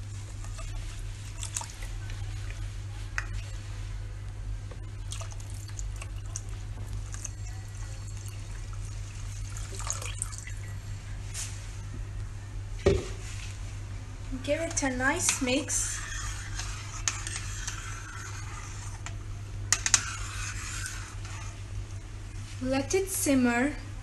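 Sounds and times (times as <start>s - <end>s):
water pouring into a pan: 8.1s - 10.6s.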